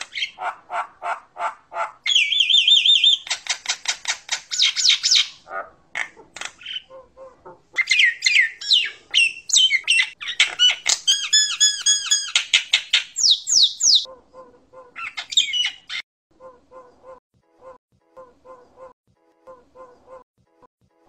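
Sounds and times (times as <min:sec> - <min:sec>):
myna singing whistles and squawks: 0:02.1 - 0:03.8, 0:04.5 - 0:05.4, 0:07.8 - 0:14.1, 0:15.0 - 0:16.0.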